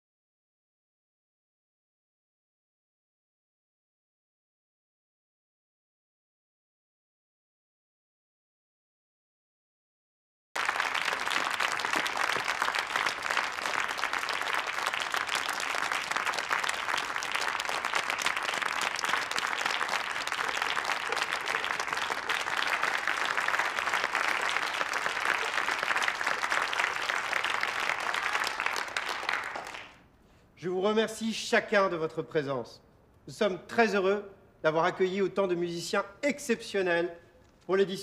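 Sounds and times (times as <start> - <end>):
audience applause: 10.6 - 30.0.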